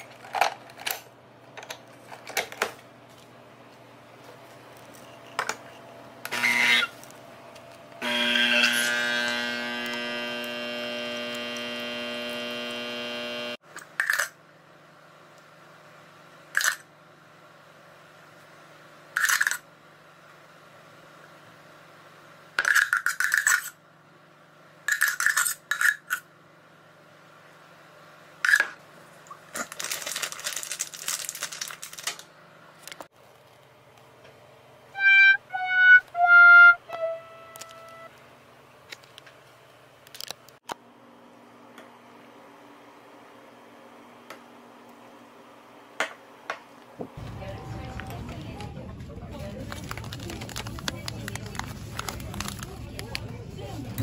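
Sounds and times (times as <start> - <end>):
coffee machine pump humming: 5.0 - 13.6.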